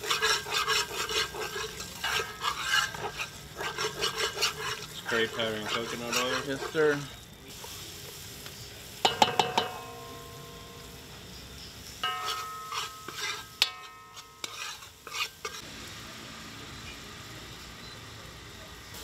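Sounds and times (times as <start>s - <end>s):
metal spoon scraping metal pot: 0.0s - 7.2s, 12.0s - 15.6s
food sizzling in oil: 0.0s - 19.0s.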